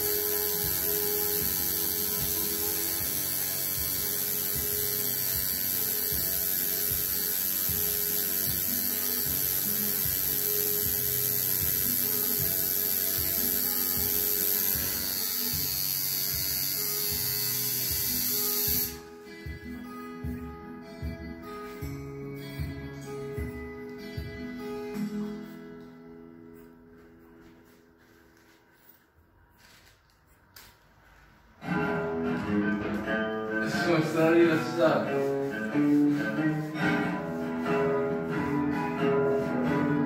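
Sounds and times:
tattoo machine buzzing: 0:00.0 - 0:19.2.

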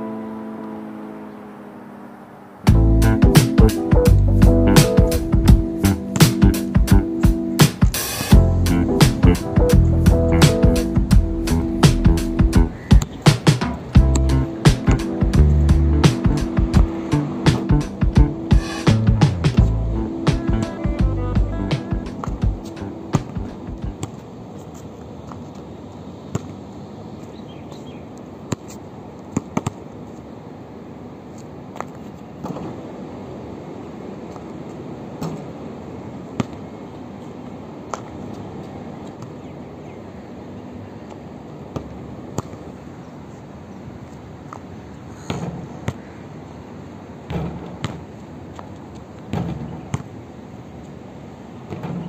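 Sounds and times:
background noise: 0:00.0 - 0:52.0
steady background hum: 0:00.0 - 0:52.0
basketball bouncing: 0:11.8 - 0:16.9, 0:21.8 - 0:24.2, 0:47.3 - 0:48.7, 0:49.3 - 0:50.1.

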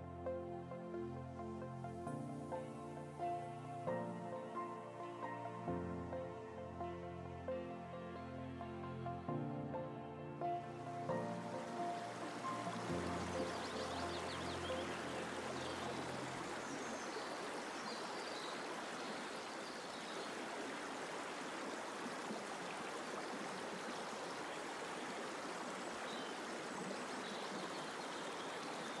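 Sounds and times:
background music: 0:00.0 - 0:17.0
stream water flowing: 0:10.4 - 0:29.0.

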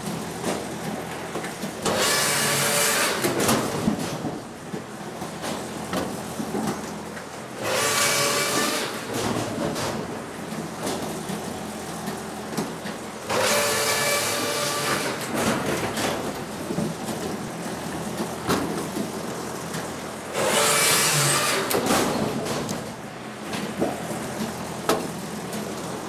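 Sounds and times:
firewood machine running: 0:00.0 - 0:26.0
saw cutting through wood: 0:01.9 - 0:03.3, 0:07.6 - 0:09.1, 0:13.3 - 0:15.3, 0:20.3 - 0:21.9.

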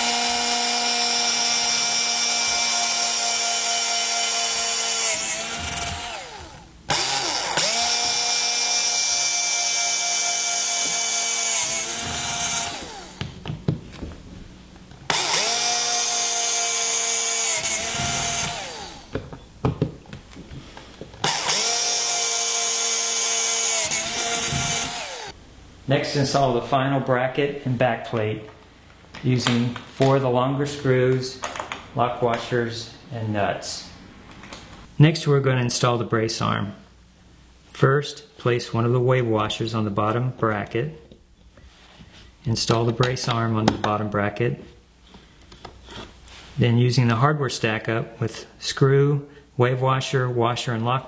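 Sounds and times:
electric drill boring through steel: 0:00.0 - 0:13.2, 0:15.1 - 0:19.1, 0:21.2 - 0:25.4.

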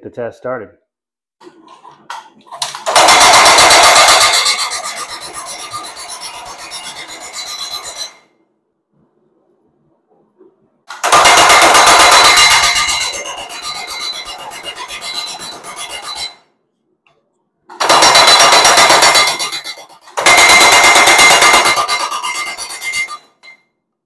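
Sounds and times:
power hammer pounding steel: 0:02.8 - 0:08.2, 0:10.9 - 0:16.4, 0:17.7 - 0:23.6.

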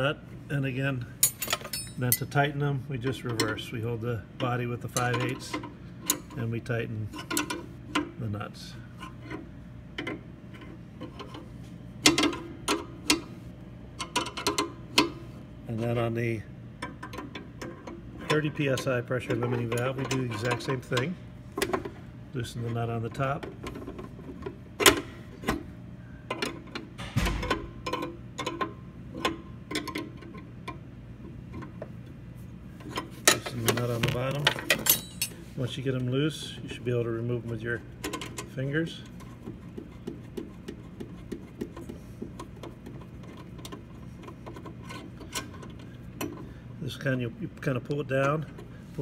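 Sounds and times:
metal clank: 0:01.2 - 0:02.3, 0:27.0 - 0:28.6, 0:33.3 - 0:35.4
metal wrenches clinking: 0:01.2 - 0:02.4, 0:32.9 - 0:35.4.

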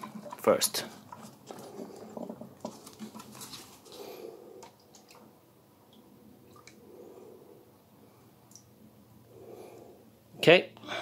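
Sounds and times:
faint splashing and dripping: 0:00.0 - 0:07.3, 0:08.4 - 0:08.8.

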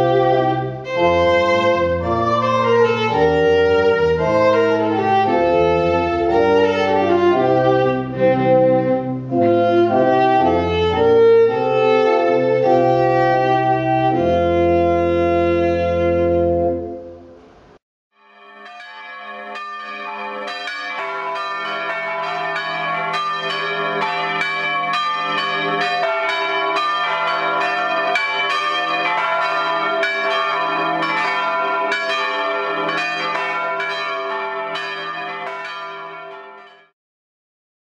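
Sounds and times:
church bells ringing: 0:00.0 - 0:08.5, 0:18.2 - 0:36.9.

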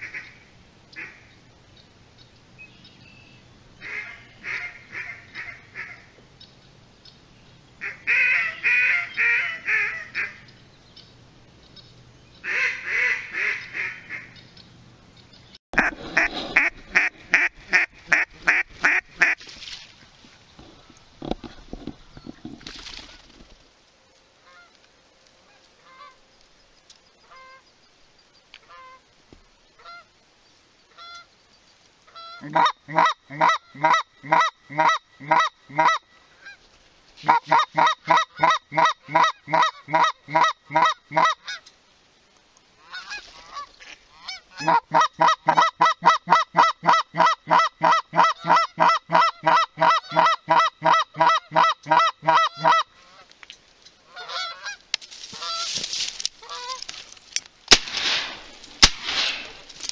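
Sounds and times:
goose call honks: 0:03.8 - 0:06.1, 0:07.8 - 0:10.4, 0:15.8 - 0:19.4, 0:32.1 - 0:36.6, 0:37.2 - 0:41.6, 0:42.8 - 0:53.3, 0:54.1 - 0:55.8, 0:56.4 - 0:56.8
sharp cracks: 0:54.9 - 0:59.9.

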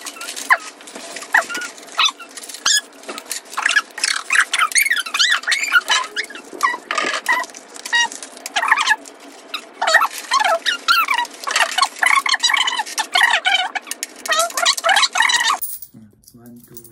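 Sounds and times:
coins clinking on tabletop: 0:14.4 - 0:16.9.

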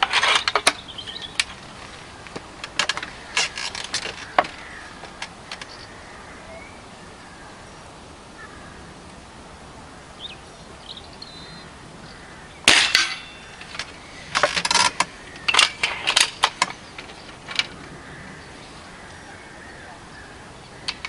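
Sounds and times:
rifle handling clicks and knocks: 0:02.2 - 0:05.7, 0:12.7 - 0:17.8.

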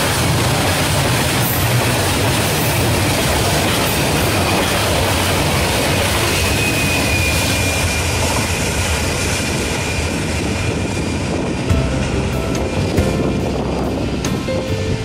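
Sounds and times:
train wheels rumbling on rail: 0:00.0 - 0:15.0
high wheel squeal: 0:05.5 - 0:11.5.

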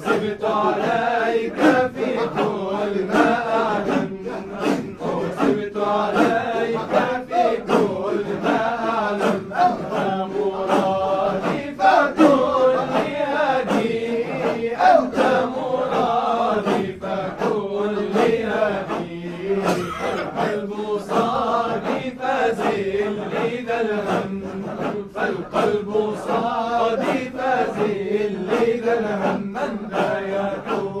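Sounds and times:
group of voices chanting: 0:00.0 - 0:31.0.

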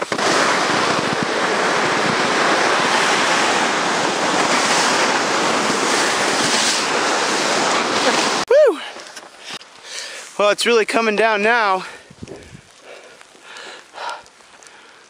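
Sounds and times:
wind buffeting microphone: 0:00.0 - 0:08.4, 0:12.0 - 0:12.8
sled hissing over snow: 0:00.0 - 0:10.6.

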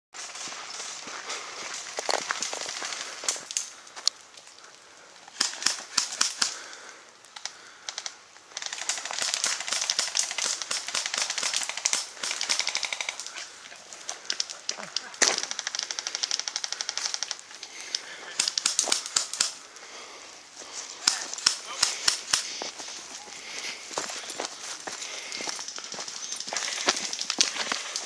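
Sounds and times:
airsoft guns firing: 0:08.6 - 0:13.3, 0:18.1 - 0:19.6, 0:21.0 - 0:22.6.

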